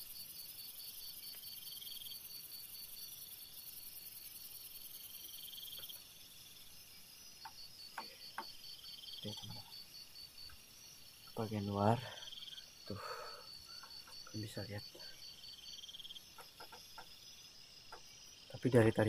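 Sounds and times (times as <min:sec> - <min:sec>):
crickets chirping: 0:00.0 - 0:19.0
soft knock: 0:07.4 - 0:08.6.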